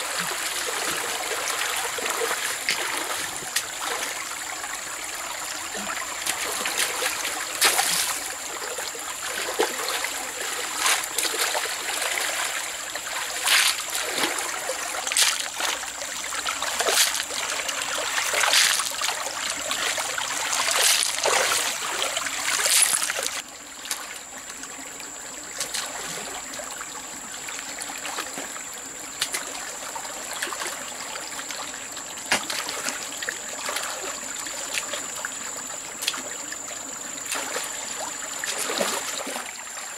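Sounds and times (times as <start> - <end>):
water splashes: 0.0 - 39.9
water trickling and flowing: 0.0 - 39.9.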